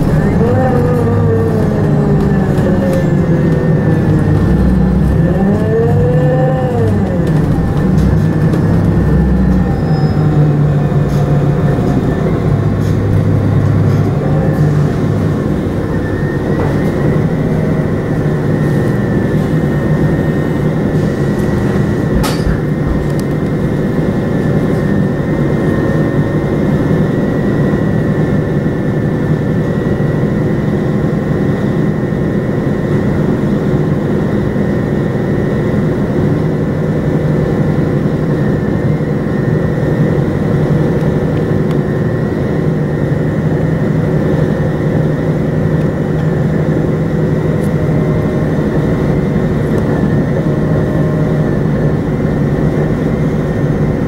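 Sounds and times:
vehicle engine running: 0.0 - 30.2.

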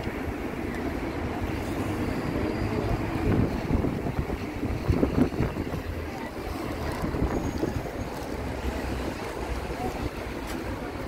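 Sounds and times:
wind buffeting microphone: 2.8 - 11.0.

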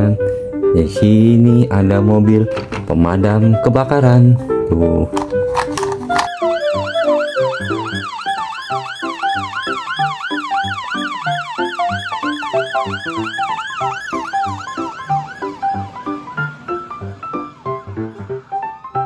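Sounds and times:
background music: 0.0 - 19.0
fire engine siren yelping: 6.2 - 19.0.

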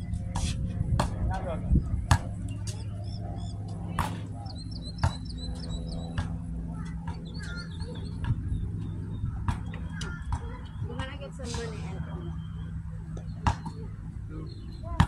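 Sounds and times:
steady low hum: 0.0 - 15.0
small birds chirping: 1.7 - 15.0
basketball bouncing: 5.0 - 5.3, 13.4 - 13.8.

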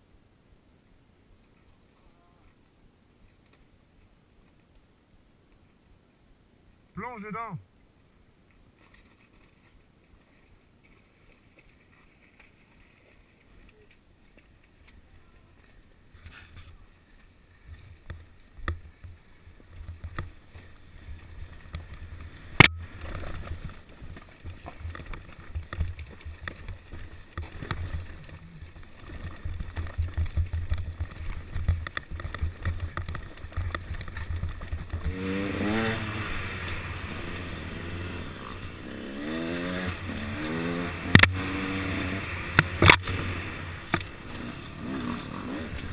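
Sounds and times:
dirt bike engine rumbling and revving: 19.8 - 45.9.

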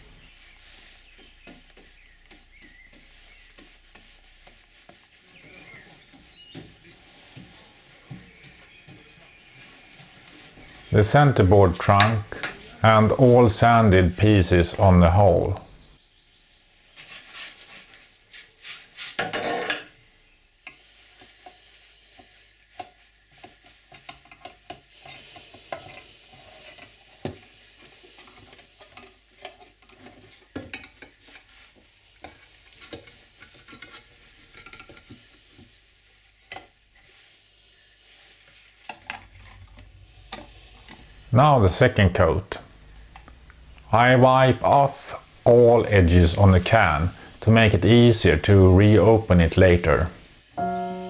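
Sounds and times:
varnish being stirred: 0.0 - 14.8, 16.9 - 19.5, 20.5 - 41.2
metal tins clinking and scraping: 19.2 - 20.0.

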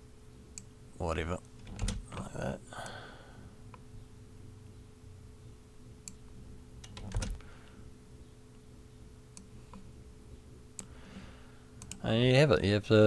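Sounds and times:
faint steady hum: 0.0 - 13.0
keyboard and mouse clicks: 6.8 - 7.4, 11.8 - 12.0.

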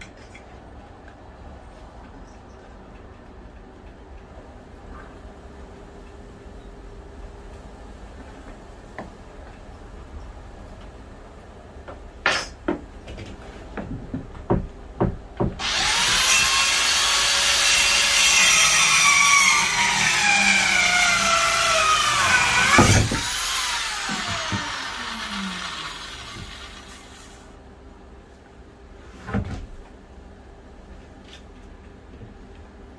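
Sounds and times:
scattered knocks: 13.8 - 15.6
circular saw cutting board: 15.6 - 27.5.

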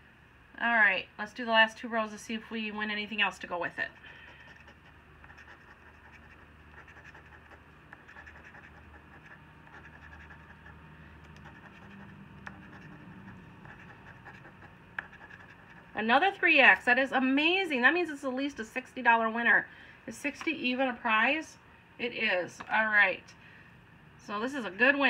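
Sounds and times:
coin scratching ticket: 4.2 - 10.8, 11.4 - 15.9.

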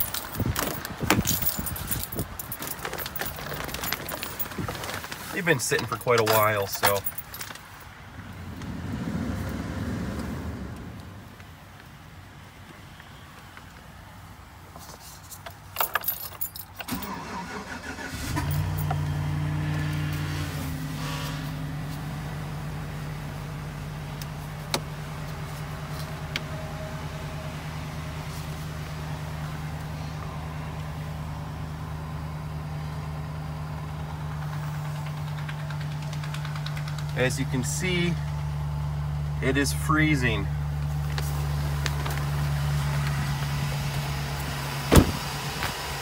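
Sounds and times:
engine cranking and idling: 0.0 - 11.4, 16.8 - 20.6, 33.0 - 46.0.

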